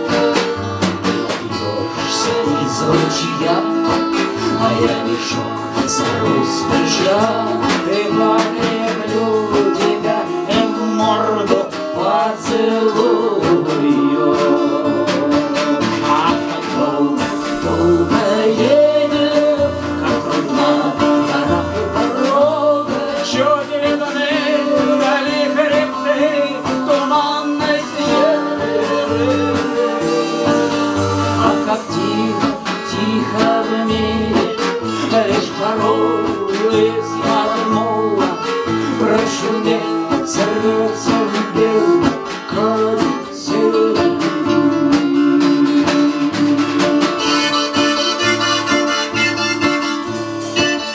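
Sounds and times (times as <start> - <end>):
strummed acoustic guitar: 0.0 - 50.9
violin melody: 46.6 - 50.9.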